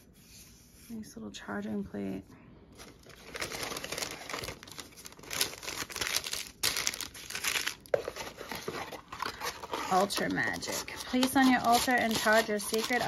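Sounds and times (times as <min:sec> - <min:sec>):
packaging crinkling and rustling: 0:02.7 - 0:13.0.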